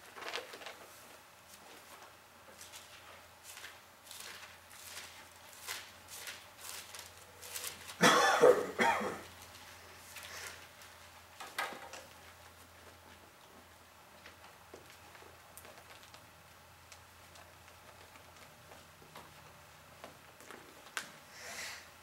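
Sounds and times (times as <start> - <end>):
pages turning: 0.0 - 2.0, 2.6 - 8.0
person coughing: 8.0 - 9.3.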